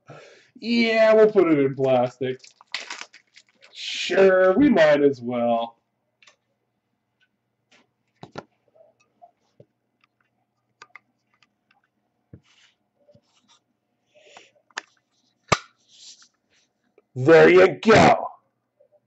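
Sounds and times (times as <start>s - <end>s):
card handling clicks and rustles: 2.4s - 3.8s.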